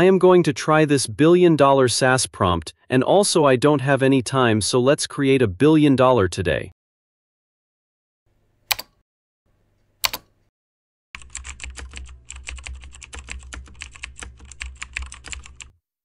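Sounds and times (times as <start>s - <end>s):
computer keyboard typing: 8.7s - 8.9s, 10.0s - 10.3s, 11.2s - 15.8s
sharp key clicks: 8.7s - 8.9s.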